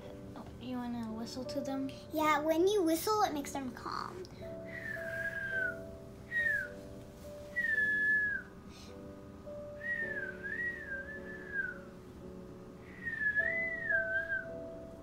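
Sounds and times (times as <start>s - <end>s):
background music of held chords: 0.0s - 15.0s
person whistling: 4.7s - 6.8s, 7.5s - 8.6s, 9.8s - 11.9s, 12.9s - 14.6s.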